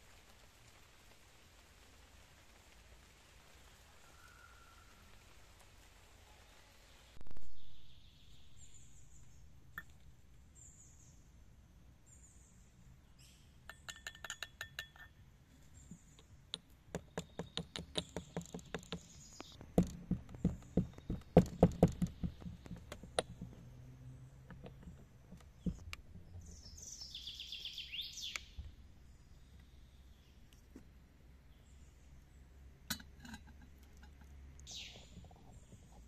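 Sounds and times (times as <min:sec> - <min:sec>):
stone mortar and pestle pounding: 0:16.9 - 0:23.7
bird calling: 0:26.4 - 0:28.6, 0:34.7 - 0:36.0.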